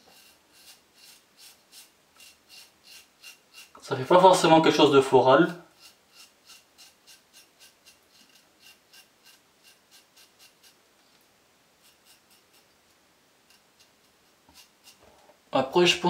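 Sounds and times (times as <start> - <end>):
razor scraping stubble: 0.0 - 4.6, 5.7 - 11.2, 11.8 - 12.8, 13.4 - 15.2.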